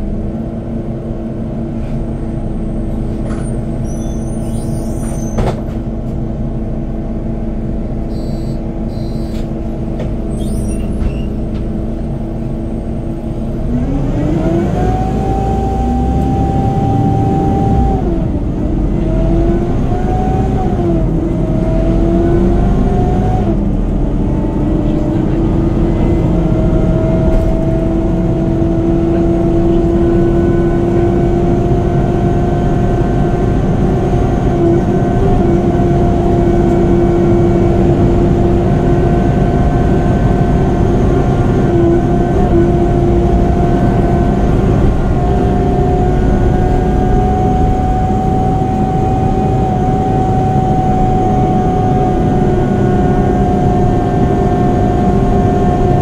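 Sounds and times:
bus engine pulling away: 0.0s - 56.0s
cooling fan whining howl: 13.6s - 56.0s.

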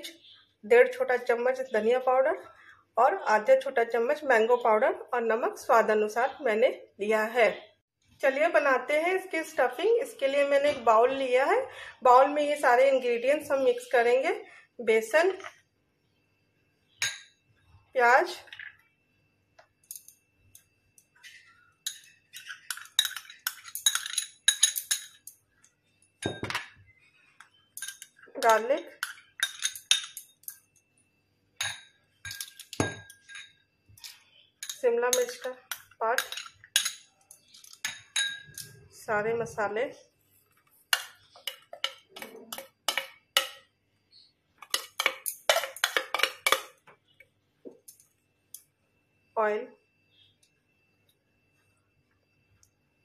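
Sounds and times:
metal spoon clinking glass bowl: 17.0s - 17.4s, 21.8s - 25.4s, 27.8s - 30.8s, 31.6s - 38.8s, 40.9s - 43.7s, 44.6s - 46.8s
spoon tapping and scraping plate: 21.8s - 25.4s, 40.9s - 43.7s, 44.6s - 46.9s.

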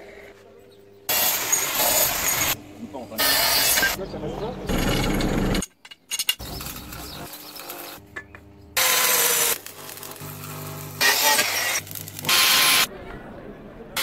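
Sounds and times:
angle grinder cutting steel: 1.1s - 2.6s, 3.2s - 4.0s, 8.8s - 12.9s.

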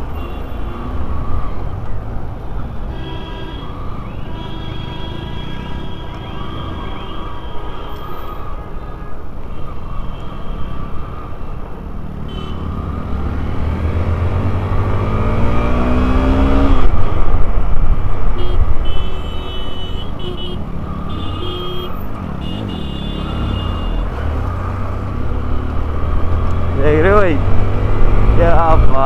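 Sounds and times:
motorcycle engine revving: 12.5s - 17.1s, 22.0s - 29.0s.

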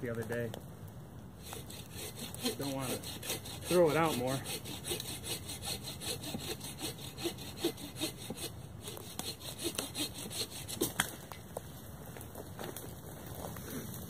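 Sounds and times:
folding saw cutting wood: 1.4s - 11.1s.

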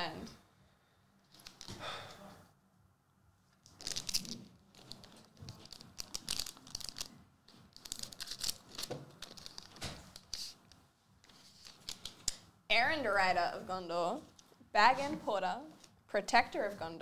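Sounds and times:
foil wrapper crinkling and tearing: 3.6s - 10.6s.

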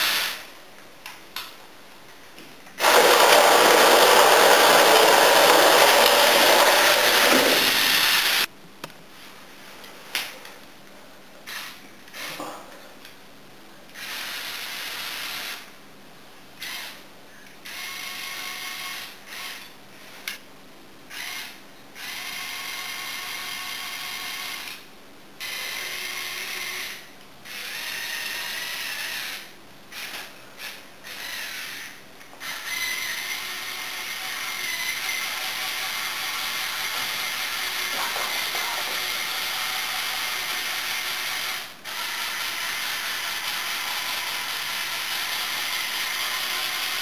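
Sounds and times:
electric motors whining: 2.8s - 8.5s.

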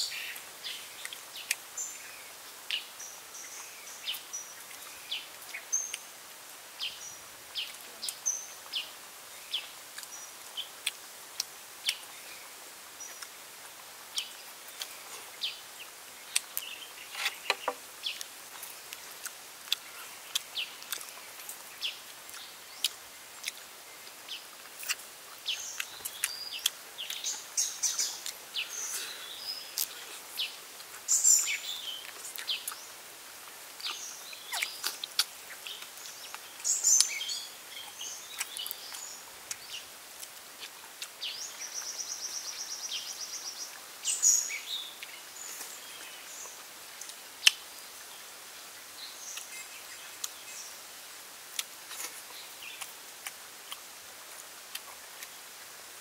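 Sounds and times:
birds chirping: 0.0s - 33.1s, 33.8s - 40.0s, 40.6s - 46.7s
chewing and eating by hand: 10.8s - 12.1s, 16.3s - 29.2s, 29.8s - 31.1s, 33.8s - 37.1s, 37.8s - 41.2s, 51.5s - 55.4s.

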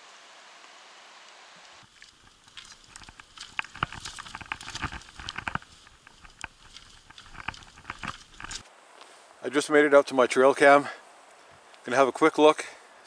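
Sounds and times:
footsteps crunching through snow: 1.8s - 9.3s.

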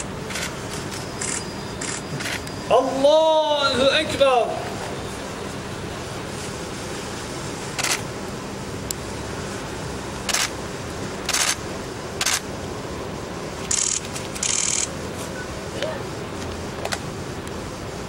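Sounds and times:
steady background hush: 0.0s - 18.0s
camera shutters clicking: 0.3s - 2.4s, 7.8s - 8.0s, 10.3s - 10.5s, 11.2s - 11.6s, 12.2s - 12.4s, 13.6s - 14.9s.

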